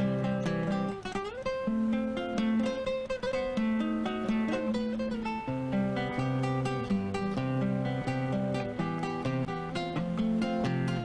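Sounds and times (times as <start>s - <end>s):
plucked guitar music: 0.0s - 11.0s.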